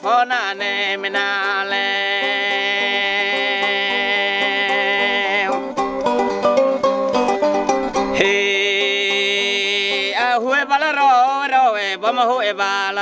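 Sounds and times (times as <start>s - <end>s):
man chanting: 0.0s - 5.6s, 8.2s - 13.0s
plucked tube zither: 0.0s - 10.3s.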